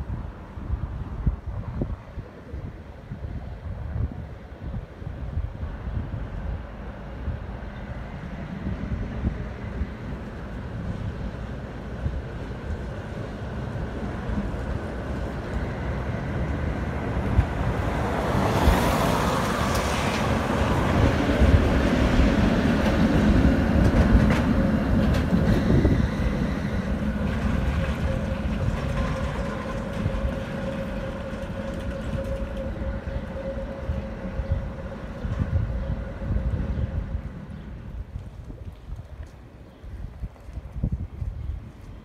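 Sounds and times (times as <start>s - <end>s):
tram wheels rumbling on rails: 0.0s - 42.0s
tram wheels squealing: 14.4s - 38.1s.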